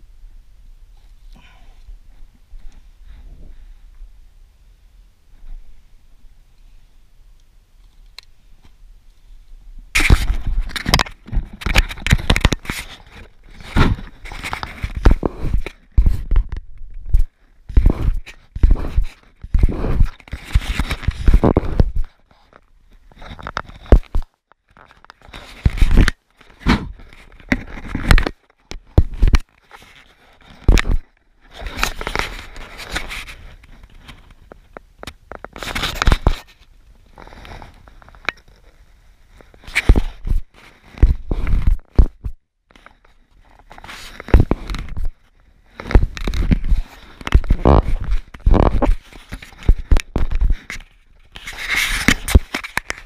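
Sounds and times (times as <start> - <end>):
rustling on camera microphone: 7.8 - 53.0
fingers rubbing a camera: 17.7 - 22.1, 45.8 - 53.0.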